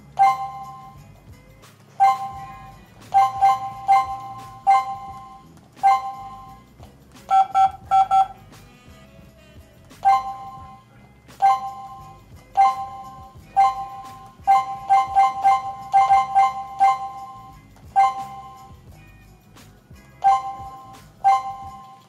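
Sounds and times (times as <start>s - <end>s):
keypad beeps: 0.2s - 1.0s, 2.0s - 2.4s, 3.1s - 6.6s, 7.3s - 8.4s, 10.0s - 10.8s, 11.4s - 12.0s, 12.6s - 18.8s, 20.2s - 22.0s.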